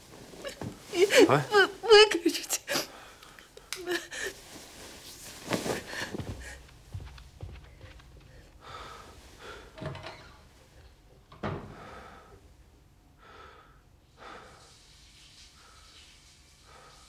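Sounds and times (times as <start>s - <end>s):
person breathing heavily: 8.2s - 9.8s, 11.7s - 12.4s, 13.2s - 14.7s.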